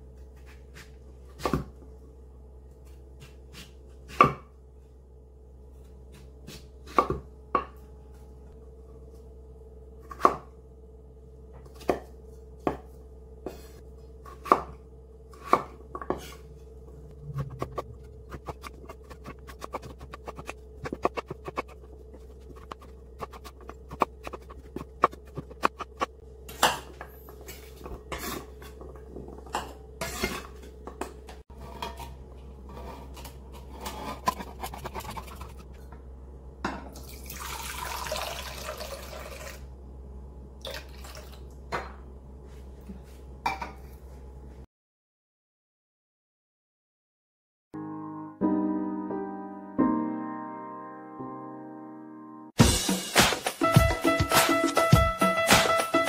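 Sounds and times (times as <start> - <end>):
knife chopping on wooden board: 3.2 - 4.5, 17.4 - 26.9
juice pouring into cup: 37.0 - 39.7, 40.6 - 41.4.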